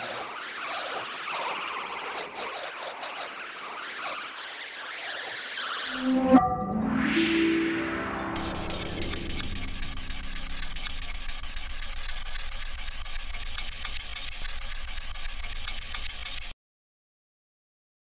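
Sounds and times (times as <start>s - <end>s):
scribbling on paper: 9.9s - 16.5s.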